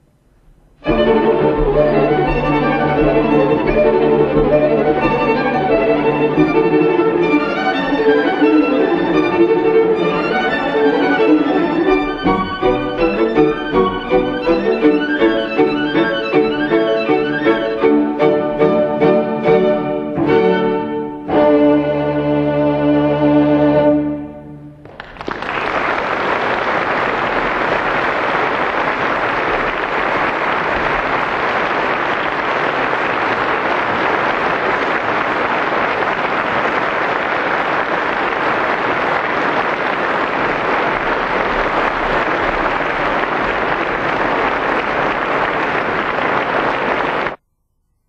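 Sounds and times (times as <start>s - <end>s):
string quartet chord: 0.8s - 24.8s
audience applause: 0.9s - 17.8s, 24.8s - 47.4s.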